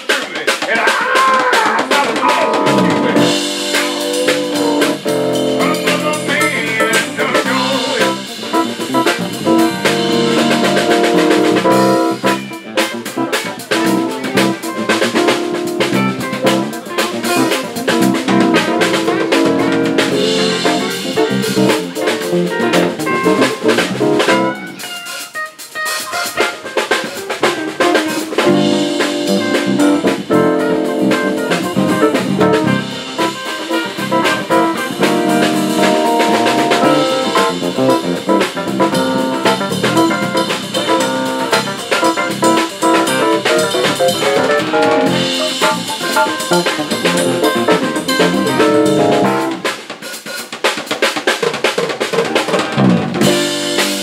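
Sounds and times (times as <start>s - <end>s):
live band playing: 0.0s - 54.0s.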